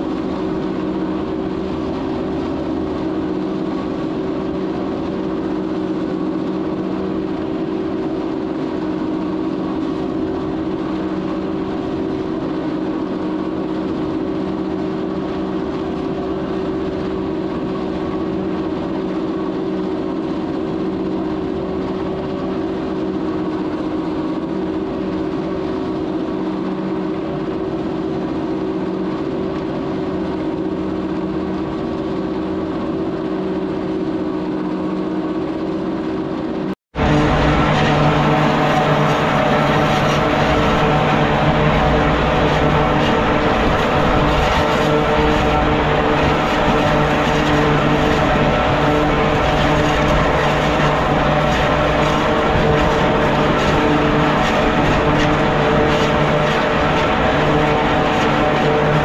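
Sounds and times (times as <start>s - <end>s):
silage cutter churning: 37.0s - 59.0s
tractor engine running: 37.0s - 59.0s.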